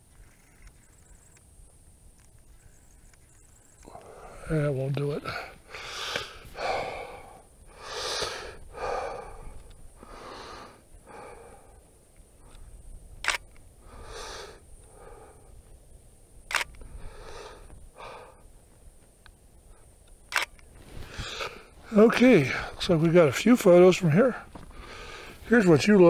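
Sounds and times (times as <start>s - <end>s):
person breathing heavily: 3.8s - 12.7s, 13.8s - 15.7s, 16.8s - 18.6s, 20.9s - 22.8s, 24.4s - 25.5s
camera shutter clicking: 13.2s - 13.6s, 16.5s - 16.8s, 20.3s - 20.7s.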